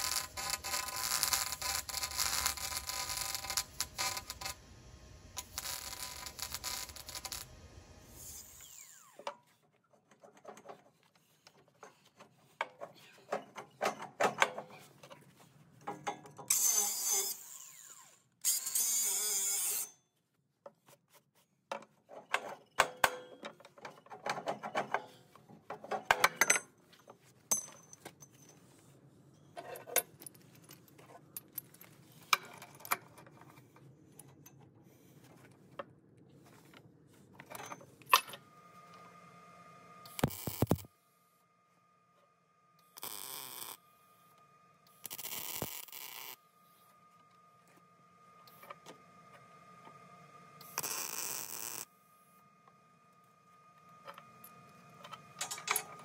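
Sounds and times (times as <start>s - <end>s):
hand-held grinder running: 0.0s - 4.6s, 5.4s - 7.6s
steel parts clinking and knocking: 15.8s - 17.0s, 21.7s - 28.7s, 54.1s - 56.0s.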